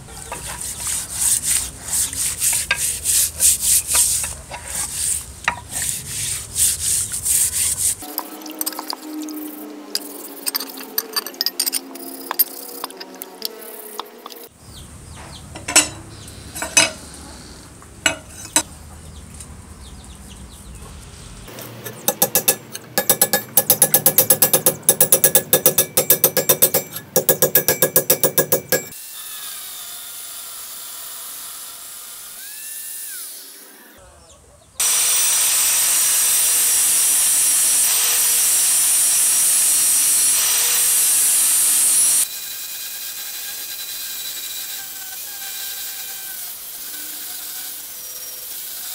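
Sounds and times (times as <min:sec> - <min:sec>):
angle grinder running: 0:21.5 - 0:29.6, 0:34.8 - 0:48.9
metal clinks: 0:21.8 - 0:28.9
hammer blows on steel: 0:21.9 - 0:29.0.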